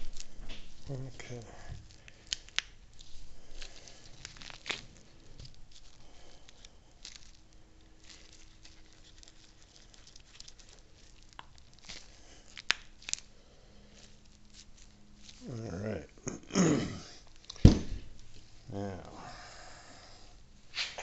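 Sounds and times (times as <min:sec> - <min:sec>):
rubber gloves rustling: 0:00.0 - 0:21.0.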